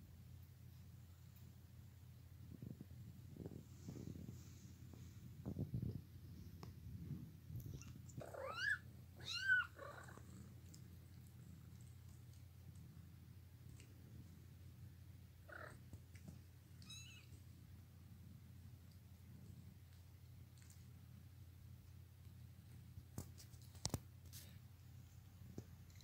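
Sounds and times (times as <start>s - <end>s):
cat purring: 0.0s - 26.0s.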